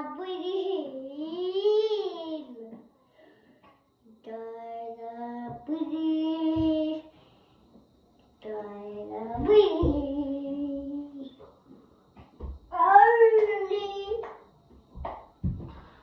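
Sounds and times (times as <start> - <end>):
child singing wordlessly: 0.0 - 2.8, 4.1 - 7.1, 8.4 - 11.4, 12.7 - 14.3.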